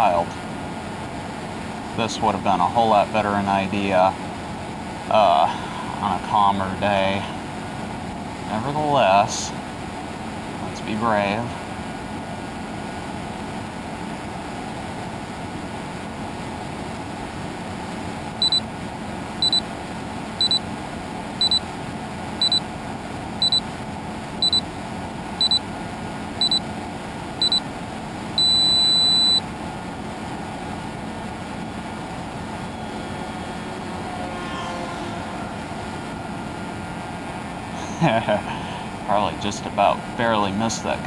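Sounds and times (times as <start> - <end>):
long beep: 18.4 - 18.7, 19.4 - 19.7, 20.4 - 20.6, 21.4 - 21.7, 22.4 - 22.6, 23.4 - 23.7, 24.4 - 24.7, 25.4 - 25.7, 26.4 - 26.6, 27.4 - 27.7, 28.4 - 29.5, 31.5 - 38.0
short high beeps: 18.4 - 18.7, 19.4 - 19.6, 20.4 - 20.6, 21.4 - 21.6, 22.4 - 22.6, 23.4 - 23.6, 24.4 - 24.6, 25.4 - 25.6, 26.4 - 26.6, 27.4 - 27.6, 28.4 - 29.5.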